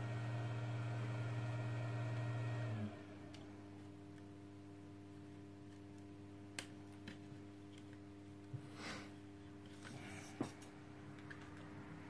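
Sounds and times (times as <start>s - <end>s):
appliance fan humming: 0.0s - 12.0s
faint steady hum: 0.0s - 12.0s.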